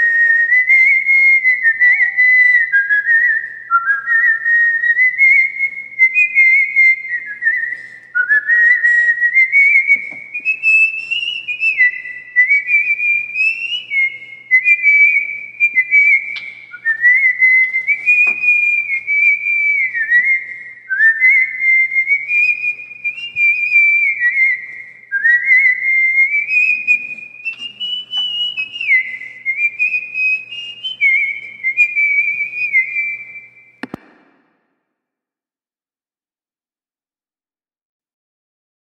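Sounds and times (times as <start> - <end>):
person whistling a tune: 0.0 - 34.0
single click: 33.8 - 34.4.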